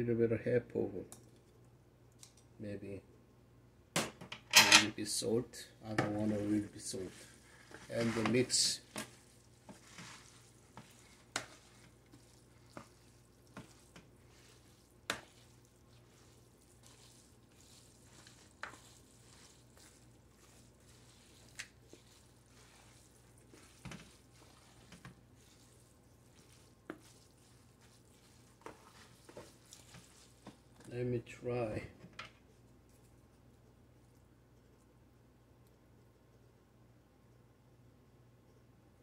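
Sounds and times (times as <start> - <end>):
wet stirring of noodles in bowl: 6.0 - 31.0, 32.3 - 35.0.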